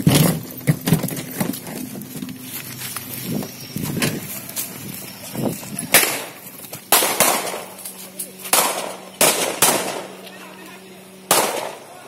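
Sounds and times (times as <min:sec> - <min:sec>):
shuffling movement: 0:00.0 - 0:06.9
low voices: 0:01.7 - 0:06.8, 0:07.6 - 0:09.2, 0:10.0 - 0:12.0
loud gunshot: 0:06.9 - 0:07.7, 0:08.5 - 0:10.2, 0:11.3 - 0:11.8.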